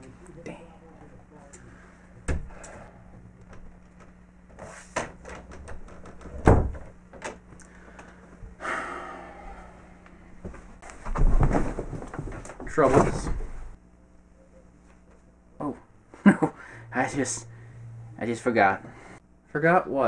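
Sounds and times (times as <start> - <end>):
door shutting thud: 5.0 - 6.9.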